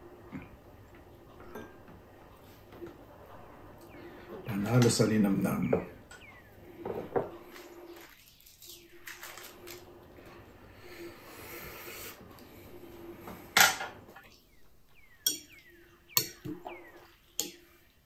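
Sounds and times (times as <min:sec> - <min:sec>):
lettuce leaf rustling: 0:07.5 - 0:09.9.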